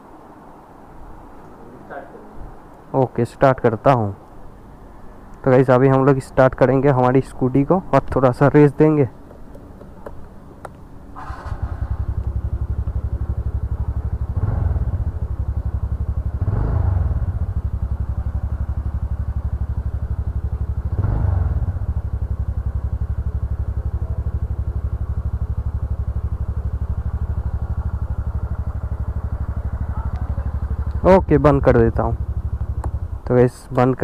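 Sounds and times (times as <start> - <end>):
scooter engine idling: 9.2 - 34.0
throttle revs: 11.2 - 23.0.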